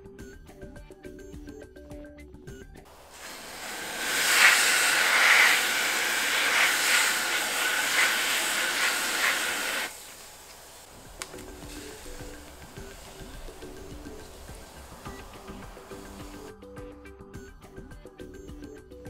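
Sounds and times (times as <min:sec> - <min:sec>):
aerosol spray hissing: 0:02.9 - 0:16.6.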